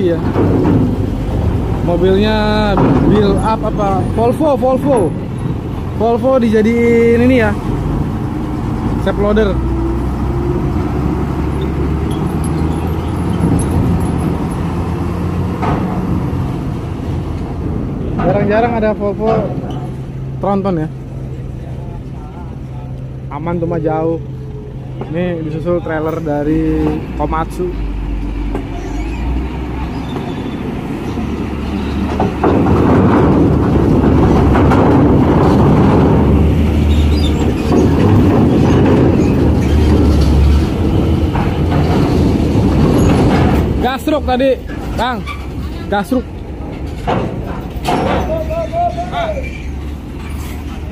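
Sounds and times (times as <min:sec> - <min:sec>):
wheels clattering over steel plates: 0:00.0 - 0:07.6, 0:10.6 - 0:20.3, 0:28.5 - 0:50.9
diesel engine droning: 0:00.0 - 0:50.9.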